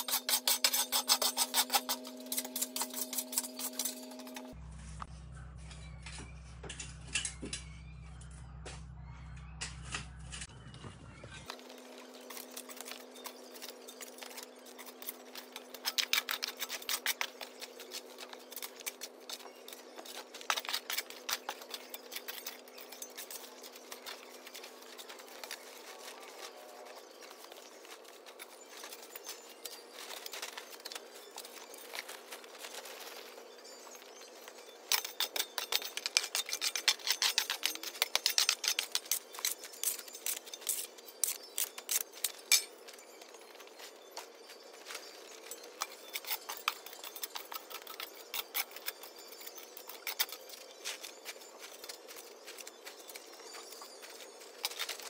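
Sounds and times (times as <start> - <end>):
metal shovel scraping concrete: 0.0 - 4.6.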